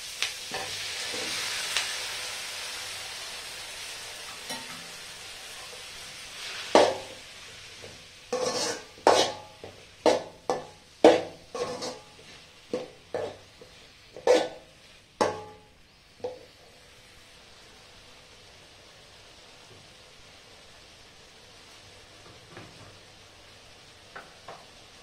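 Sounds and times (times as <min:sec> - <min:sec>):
faint frying hiss: 0:00.0 - 0:25.0
metal ladle knocking and scraping pan: 0:06.8 - 0:07.2, 0:07.8 - 0:13.4, 0:14.2 - 0:14.6, 0:15.2 - 0:15.6.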